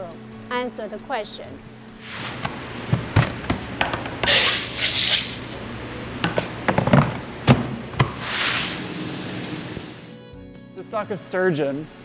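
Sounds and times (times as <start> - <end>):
pellets pouring with rushing hiss: 8.2 - 8.9.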